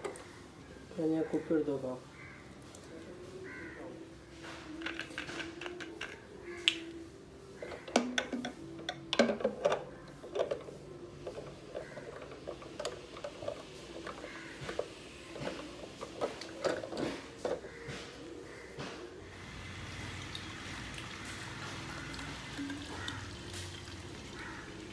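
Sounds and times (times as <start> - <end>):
plastic bottle clicking and knocking: 7.8 - 10.6.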